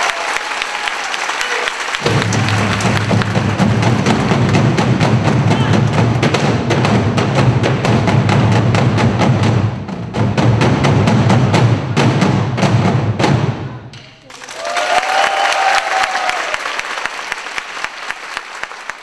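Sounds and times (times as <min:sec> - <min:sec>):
barrel drums booming: 0:02.0 - 0:14.2.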